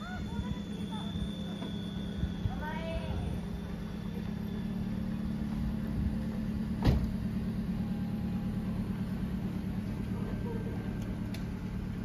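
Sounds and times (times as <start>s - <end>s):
vehicle rumbling: 0.0s - 12.0s.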